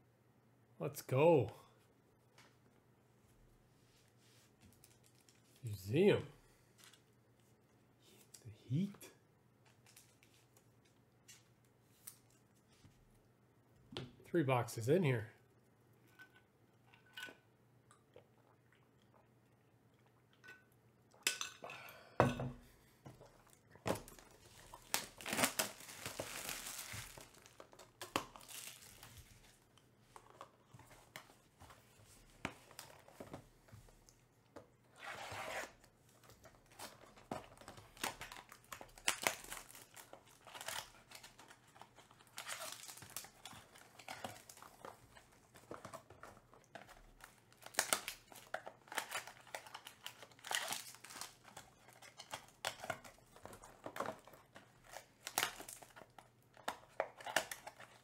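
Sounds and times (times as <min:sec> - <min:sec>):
cardboard rustling: 0:24.0 - 0:29.6
plastic wrap tearing and crinkling: 0:24.0 - 0:29.6, 0:36.6 - 0:58.0.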